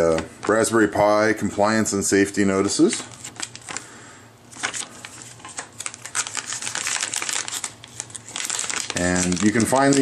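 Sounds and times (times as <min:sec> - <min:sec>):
metallic bag crinkling: 0:04.5 - 0:10.0
paper leaflet handled: 0:04.5 - 0:10.0.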